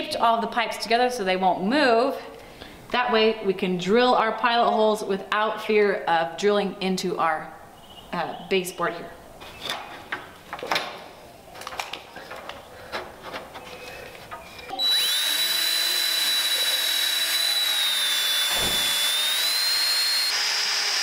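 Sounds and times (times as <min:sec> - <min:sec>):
cordless drill whining: 0:14.6 - 0:21.0.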